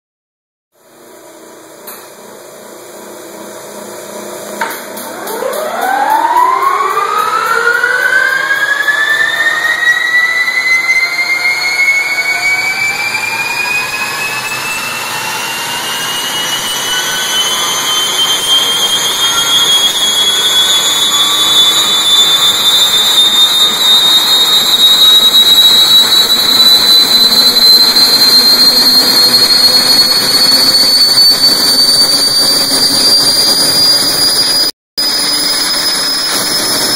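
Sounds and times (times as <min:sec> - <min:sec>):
turbine engine whine rising: 0:00.8 - 0:36.9
click: 0:01.8 - 0:02.1.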